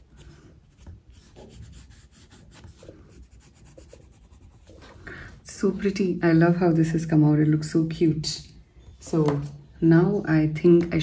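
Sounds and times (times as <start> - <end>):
colour pencil shading on paper: 0.0 - 5.0.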